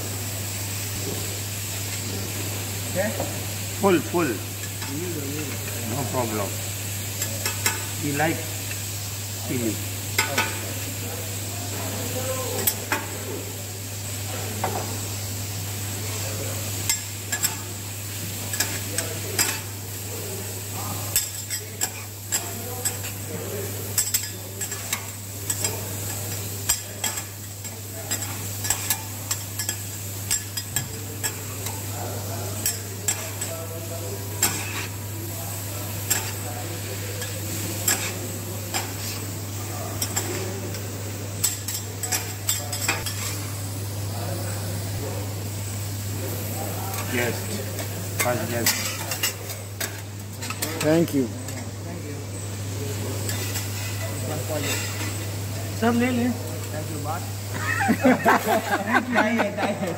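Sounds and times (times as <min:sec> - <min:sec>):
steady sizzle: 0:00.0 - 0:59.9
metal spatulas scraping griddle: 0:34.4 - 0:35.0, 0:36.0 - 0:39.4.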